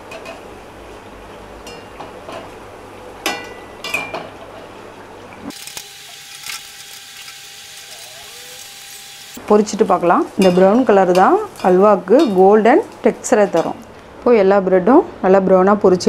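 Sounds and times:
bread sizzling in hot oil: 0:05.5 - 0:10.5
metal skimmer clinking on pan: 0:10.4 - 0:12.5.

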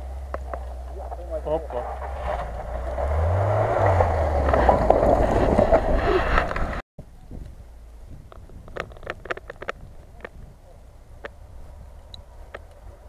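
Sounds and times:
car engine revving: 0:00.0 - 0:06.8.

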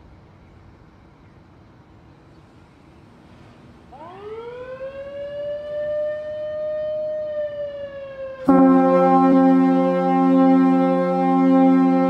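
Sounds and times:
warning siren wailing: 0:03.9 - 0:12.0
air horns sounding a chord: 0:08.4 - 0:12.0.

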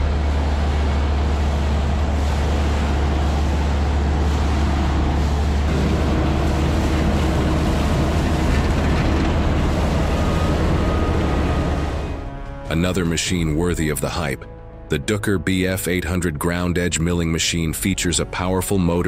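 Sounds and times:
leaf vacuum engine droning: 0:00.0 - 0:14.9.

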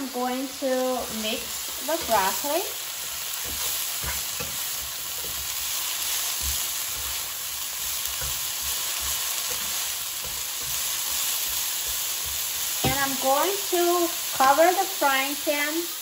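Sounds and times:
broccoli sizzling in oil: 0:00.0 - 0:16.0
spatula knocking and scraping: 0:03.4 - 0:13.1.

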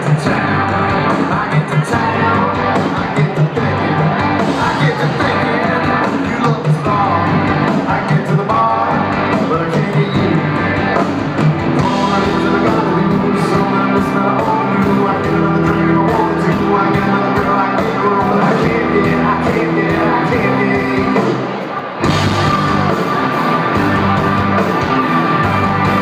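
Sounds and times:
lead vocal singing: 0:00.0 - 0:10.5, 0:11.8 - 0:21.7
drums: 0:00.0 - 0:26.0
electric guitars: 0:00.0 - 0:26.0.

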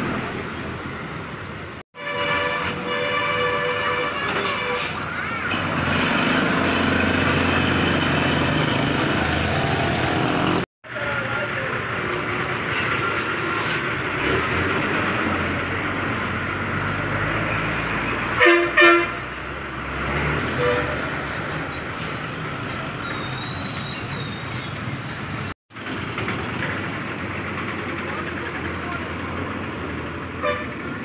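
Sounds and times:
bus engines running: 0:00.0 - 0:31.0
vehicle horn blasts: 0:02.0 - 0:04.2, 0:18.4 - 0:19.2, 0:30.4 - 0:30.7.

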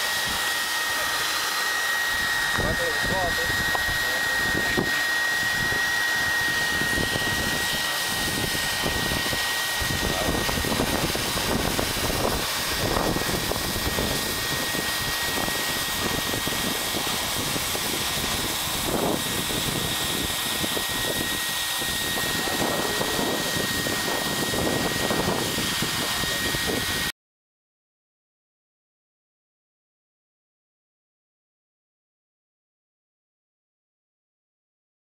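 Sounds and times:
high steady whine: 0:00.0 - 0:27.1
hot-air blower hissing: 0:00.0 - 0:27.1.

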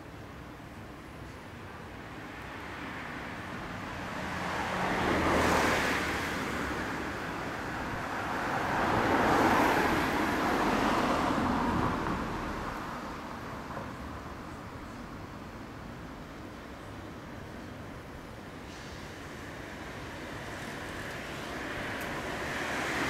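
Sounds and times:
vehicles passing: 0:00.4 - 0:23.0.

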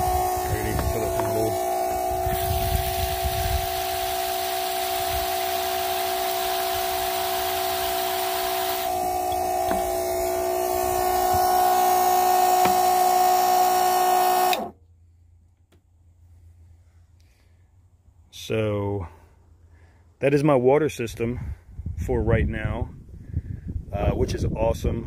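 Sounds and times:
water spraying into metal bowl: 0:00.0 - 0:09.2
water pump humming: 0:00.0 - 0:14.8.

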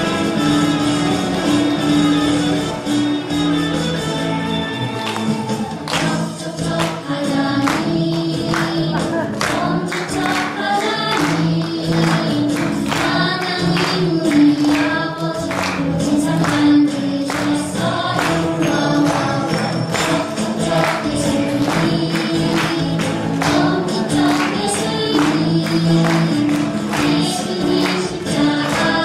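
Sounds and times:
upbeat praise song with singing: 0:04.4 - 0:29.0
steady percussion beat: 0:15.4 - 0:29.0.

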